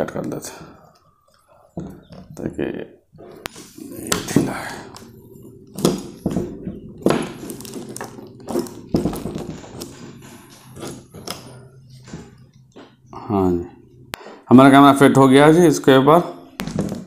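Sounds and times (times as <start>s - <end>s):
plastic knocks and clicks: 1.8s - 2.4s
plastic wrap rustling: 3.4s - 12.4s.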